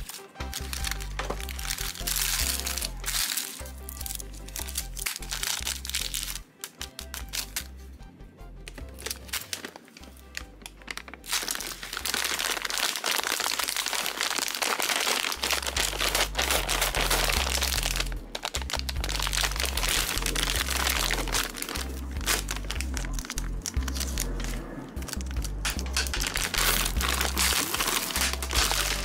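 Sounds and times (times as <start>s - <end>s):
plastic bag crinkling: 0.0s - 7.7s, 8.8s - 29.0s
background music with bass: 0.0s - 9.4s, 15.2s - 29.0s.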